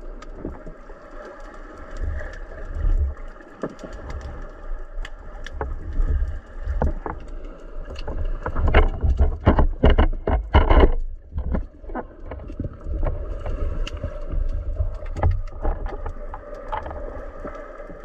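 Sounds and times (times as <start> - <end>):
underwater water rumble: 0.0 - 18.0
clicks and knocks: 8.0 - 13.1.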